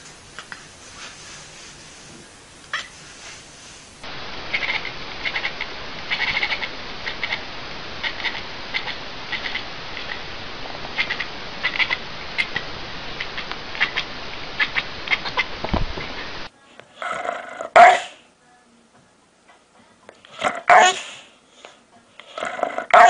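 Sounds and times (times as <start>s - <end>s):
steady hiss: 0.0s - 16.7s, 19.7s - 22.3s
cat chattering: 2.7s - 3.0s, 4.5s - 10.2s, 11.0s - 15.5s.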